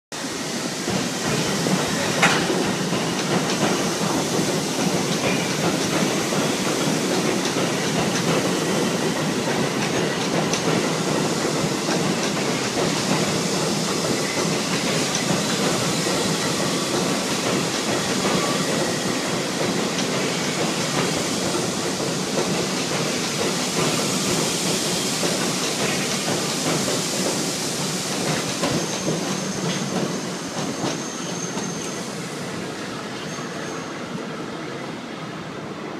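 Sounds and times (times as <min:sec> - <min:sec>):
subway train wheels on track: 0:00.1 - 0:35.9.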